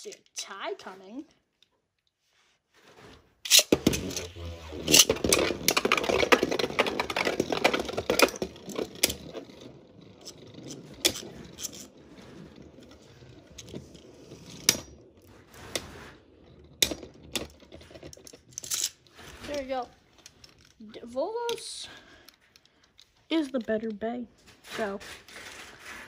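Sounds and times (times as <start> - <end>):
spinning tops whirring and scraping: 3.5 - 20.6.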